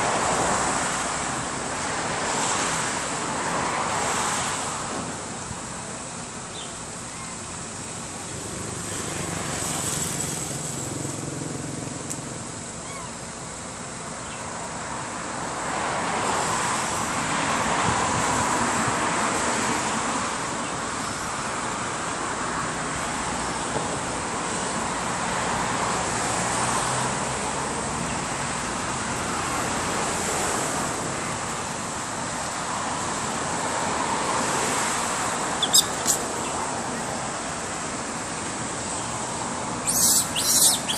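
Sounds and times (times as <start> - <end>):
road traffic rush: 0.0 - 40.9
high hiss: 4.2 - 11.2, 31.6 - 40.9.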